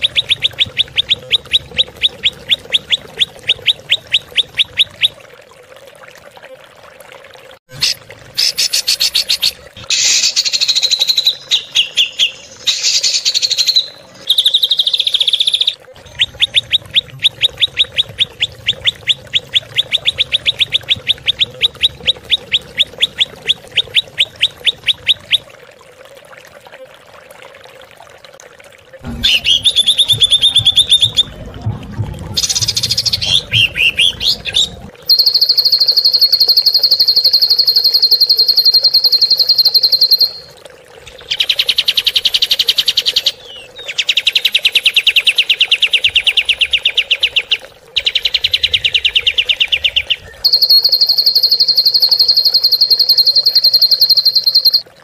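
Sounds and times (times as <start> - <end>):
high bird trill: 48.0 - 54.8.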